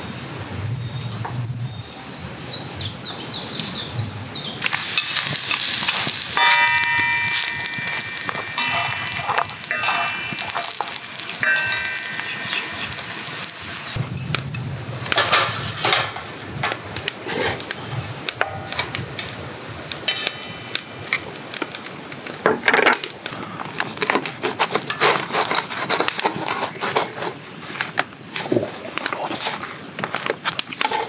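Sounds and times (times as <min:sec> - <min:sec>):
metal spatula scraping skillet: 0:04.6 - 0:14.0.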